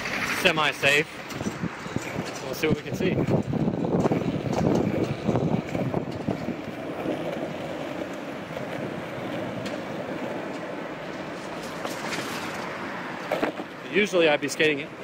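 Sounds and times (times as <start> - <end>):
wind buffeting microphone: 0.0 - 12.5
skateboard wheels rolling on asphalt: 0.0 - 15.0.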